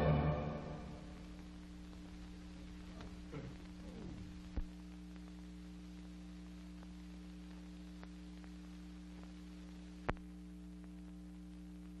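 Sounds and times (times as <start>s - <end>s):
low hum: 0.0s - 12.0s
faint ticks: 4.5s - 12.0s.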